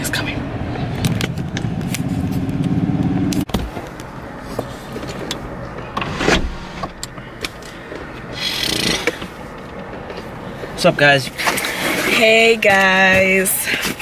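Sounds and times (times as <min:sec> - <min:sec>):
heavy thump: 0:05.8 - 0:07.6.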